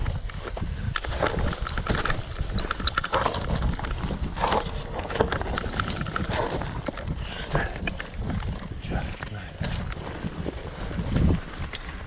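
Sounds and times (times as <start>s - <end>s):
bike rattling: 0.0s - 12.0s
wind rumble on microphone: 0.0s - 12.0s
bike tyres crunching: 9.6s - 12.0s.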